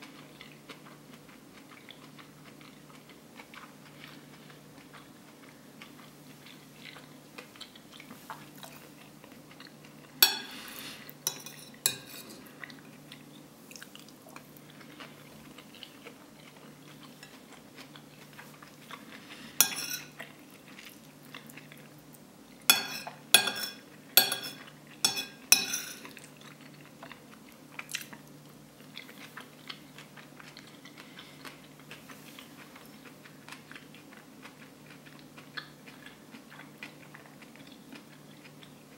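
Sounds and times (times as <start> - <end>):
spoon striking plate: 10.2 - 10.5, 11.3 - 12.4, 19.6 - 20.1, 22.7 - 26.0
metal spoon scraping a plate: 10.2 - 12.4, 19.6 - 20.1, 22.7 - 26.1.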